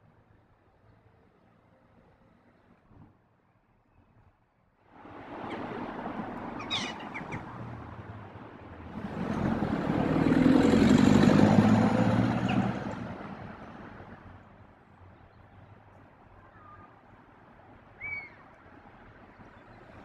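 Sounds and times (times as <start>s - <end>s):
traffic hum: 3.7s - 20.0s
car driving past: 5.0s - 14.3s.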